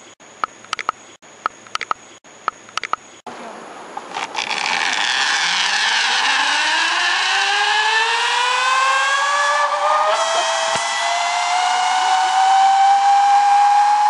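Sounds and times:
zipline pulleys whining on cable: 4.1s - 14.0s.

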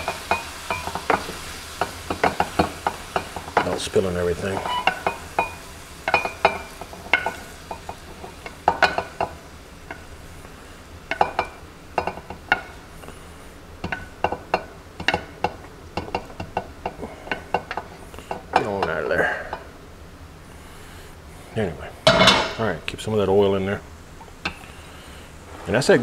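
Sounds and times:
utensil clinking against pan and bowl: 0.0s - 10.1s, 11.1s - 12.8s.

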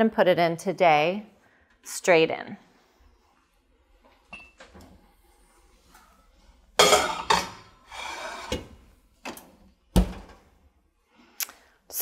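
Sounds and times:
cast iron pan clattering: 6.8s - 8.6s
pan scraping on oven rack: 6.8s - 8.8s.

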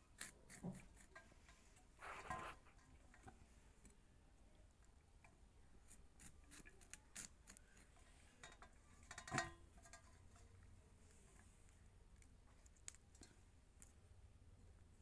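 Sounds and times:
knife cutting cauliflower florets: 0.0s - 1.2s, 5.8s - 8.0s.

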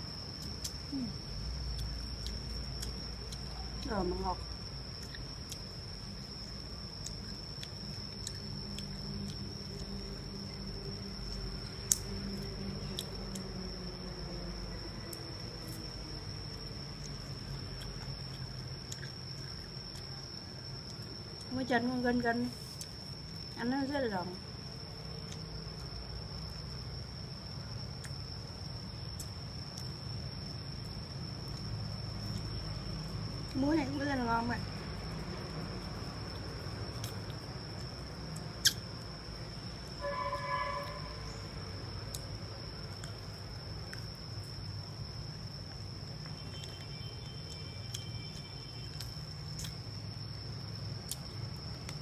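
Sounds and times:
crunchy chewing: 0.0s - 52.0s
high-pitched insect trill: 0.0s - 52.0s
low background noise: 0.0s - 52.0s
high-pitched whine: 40.0s - 41.8s.

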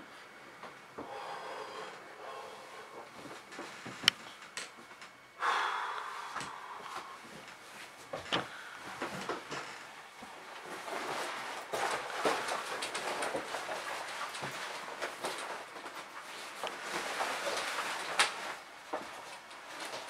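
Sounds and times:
leather jacket rustling and creaking: 7.4s - 20.0s.

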